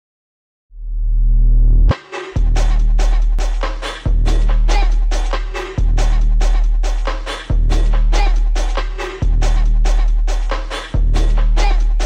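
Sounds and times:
deep bass note: 0.7s - 3.4s
electronic dance beat: 1.9s - 12.0s.

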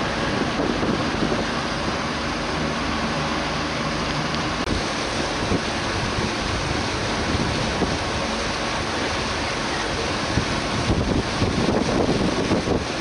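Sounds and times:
boat engine running: 0.0s - 13.0s
water rushing and splashing: 0.0s - 13.0s
wind buffeting microphone: 0.0s - 13.0s.

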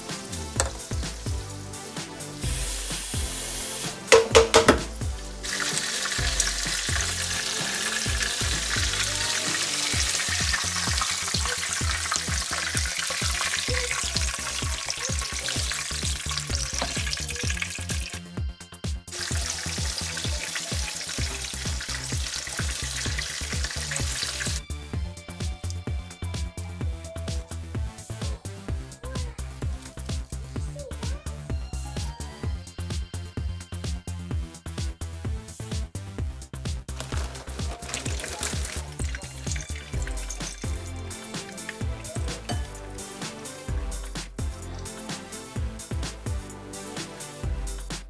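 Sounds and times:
tofu sizzling in hot oil: 2.3s - 4.4s, 5.4s - 18.2s, 19.1s - 24.6s, 37.0s - 43.6s.

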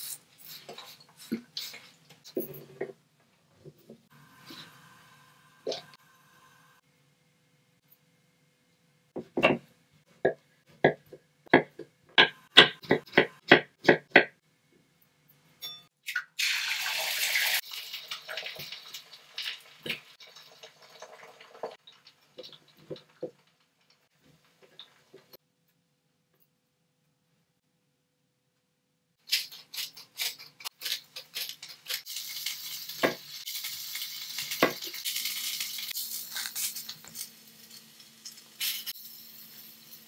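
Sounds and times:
tap water running: 16.2s - 23.4s.

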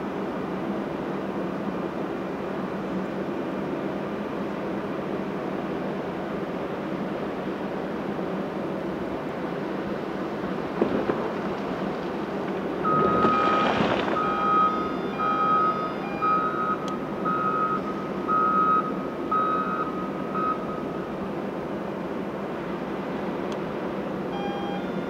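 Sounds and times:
diesel engine running: 0.0s - 25.0s
backup alarm beeping: 12.8s - 21.0s, 24.3s - 25.0s.

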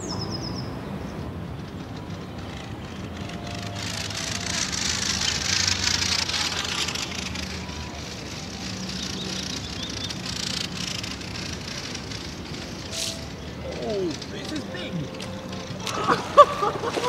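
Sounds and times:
rushing hiss: 3.8s - 14.9s.

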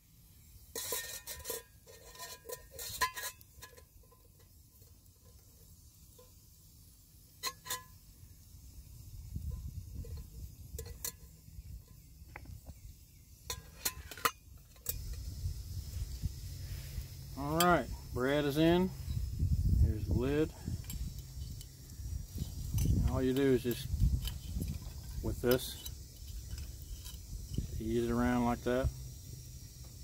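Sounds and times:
metal pot clinking and scraping: 0.7s - 6.4s, 7.3s - 8.0s, 9.4s - 12.1s, 13.4s - 15.4s, 20.0s - 28.1s.

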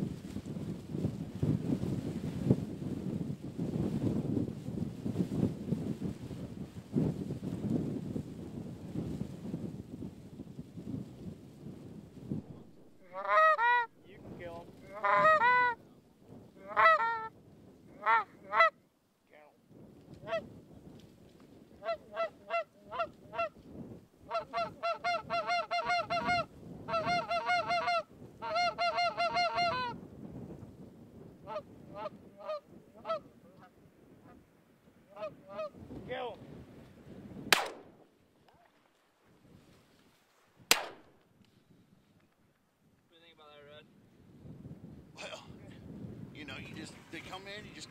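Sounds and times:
geese honking and clucking: 13.0s - 13.9s, 14.8s - 15.8s, 16.6s - 17.3s, 18.0s - 18.7s, 21.8s - 23.5s, 24.3s - 30.0s, 31.4s - 33.7s, 35.1s - 35.8s.

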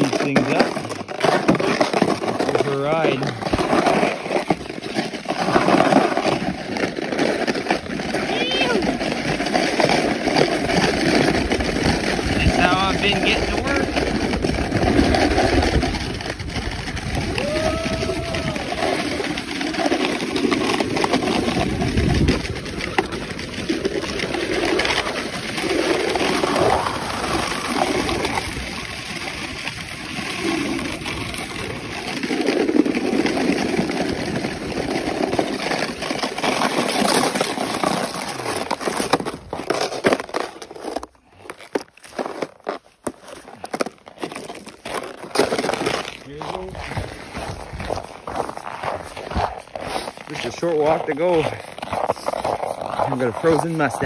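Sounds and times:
snowboard sliding on snow: 1.2s - 40.6s
wind buffeting microphone: 13.4s - 19.4s, 21.2s - 24.6s.

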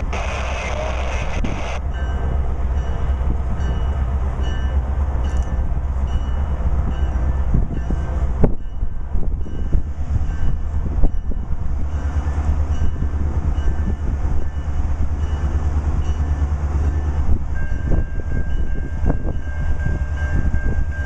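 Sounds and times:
high-pitched squeal: 0.0s - 1.8s
locomotive engine rumble: 0.0s - 21.0s.

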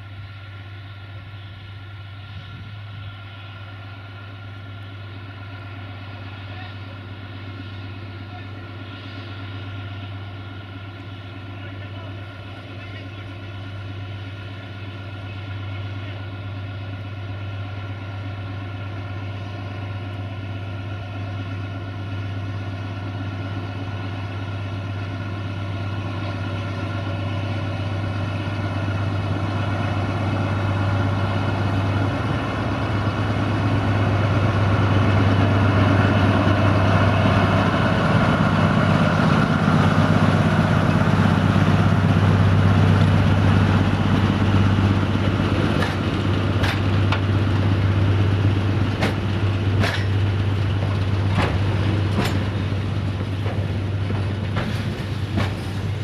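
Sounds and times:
diesel locomotive engine: 0.0s - 56.0s
wagons rumbling over rails: 0.0s - 56.0s.

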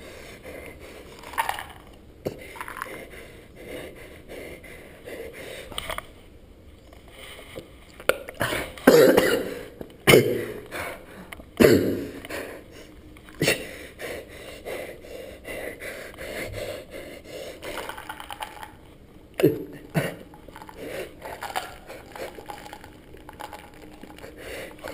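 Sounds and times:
pill bottle being shaken: 1.0s - 3.1s, 17.6s - 18.8s, 20.2s - 24.9s
man coughing: 8.4s - 10.7s, 11.6s - 12.2s, 13.4s - 13.8s, 19.4s - 20.3s.

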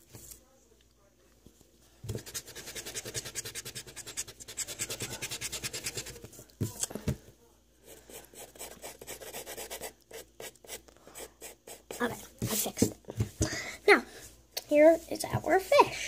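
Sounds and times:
eraser rubbing on paper: 2.2s - 6.3s, 7.9s - 12.8s.

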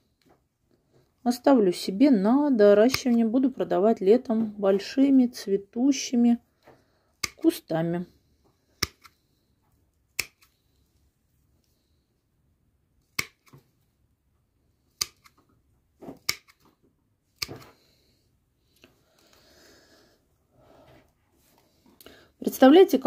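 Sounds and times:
pruning shears snipping stems: 2.8s - 3.2s, 7.2s - 7.6s, 10.2s - 10.5s, 13.1s - 13.6s, 15.0s - 15.4s, 16.2s - 16.7s.

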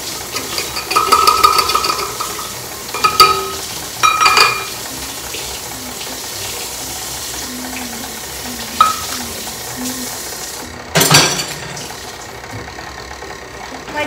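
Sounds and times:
utensils or dishes clattering: 0.3s - 4.8s, 8.7s - 9.3s, 10.9s - 11.9s
utensil clinking: 0.3s - 5.6s, 7.5s - 10.0s.

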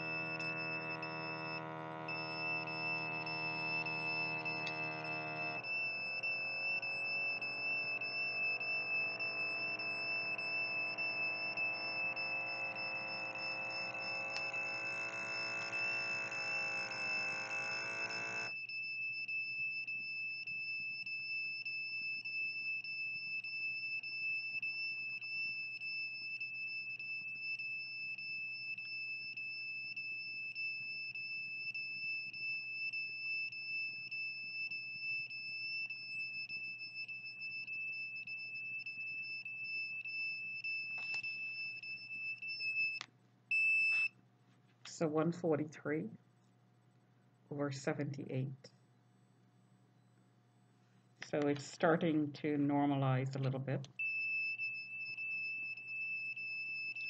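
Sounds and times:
low hum: 0.0s - 18.5s
electronic alarm tone: 0.0s - 44.1s, 54.0s - 57.0s.

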